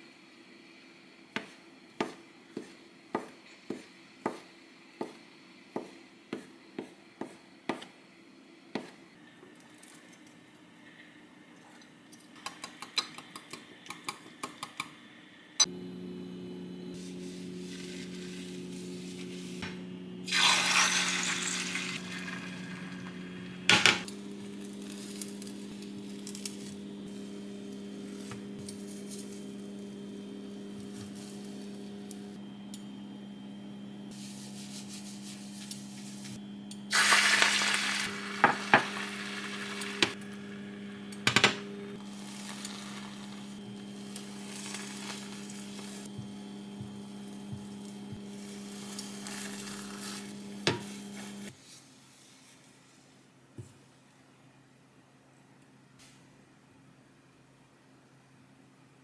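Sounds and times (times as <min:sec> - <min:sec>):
steady low hum: 0:15.6 - 0:51.6
egg sizzling in a hot pan: 0:20.3 - 0:23.7, 0:36.9 - 0:40.2, 0:42.0 - 0:46.1, 0:48.4 - 0:50.9.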